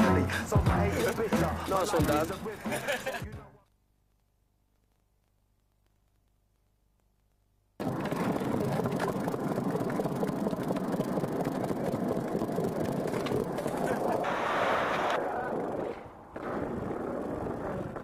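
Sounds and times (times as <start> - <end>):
skateboard wheels rolling on concrete: 0.0 - 3.2, 7.8 - 18.0.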